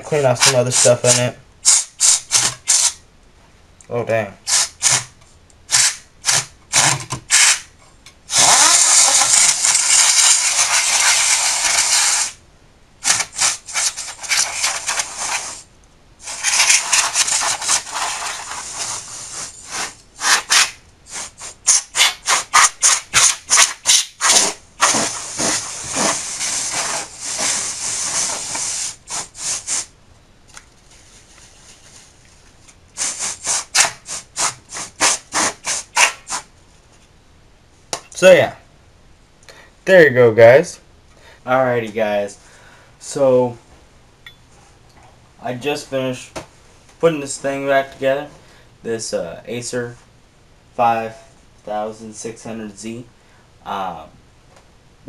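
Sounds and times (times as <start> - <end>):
compressed air spraying: 1.6 - 3.0, 4.5 - 5.1, 5.7 - 6.4, 7.3 - 7.7, 8.3 - 12.4, 13.0 - 29.9, 33.0 - 36.4.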